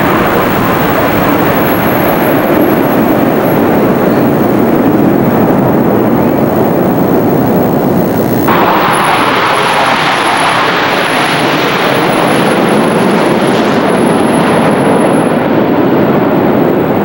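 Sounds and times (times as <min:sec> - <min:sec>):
jet aircraft flying overhead: 0:00.0 - 0:17.0.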